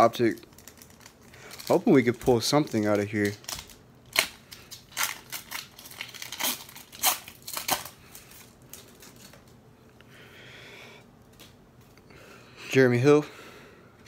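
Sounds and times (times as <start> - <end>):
wrapper crinkling and tearing: 0.0 - 9.6.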